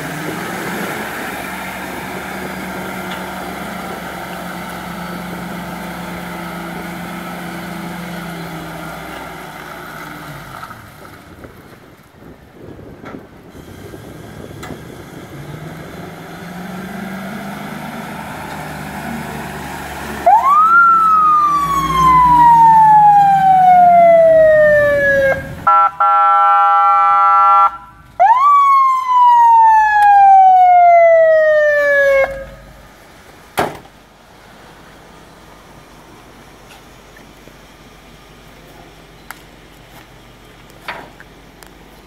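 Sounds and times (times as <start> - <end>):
fire truck engine running: 0.0 - 42.0
siren wailing: 20.1 - 32.8
blaring horn tone: 20.3 - 28.1, 31.7 - 32.8.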